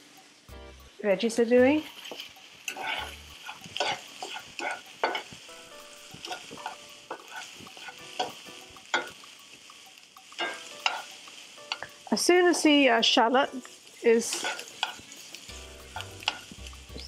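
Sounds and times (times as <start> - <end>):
vegetables sizzling in a pan: 0.0 - 17.0
spatula scraping a pan: 1.7 - 17.0.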